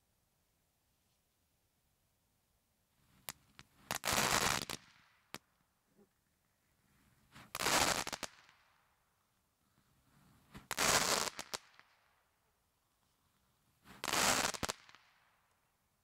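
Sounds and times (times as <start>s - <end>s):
firework pops: 3.2s - 5.5s
loud firework bursts: 3.9s - 5.0s, 7.5s - 8.6s, 10.6s - 11.9s, 13.9s - 15.2s.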